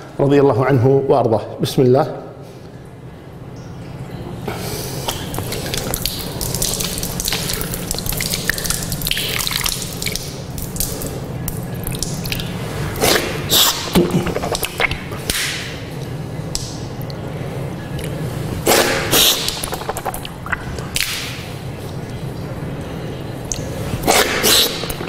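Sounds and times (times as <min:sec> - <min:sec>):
hands rubbing and splashing: 0:05.1 - 0:11.2, 0:11.9 - 0:15.6, 0:18.7 - 0:21.5.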